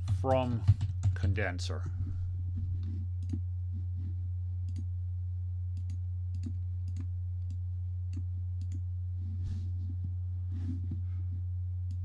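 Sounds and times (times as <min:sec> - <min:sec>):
steady low hum: 0:00.0 - 0:12.0
computer keyboard and mouse clicks: 0:03.2 - 0:03.4, 0:05.8 - 0:08.8.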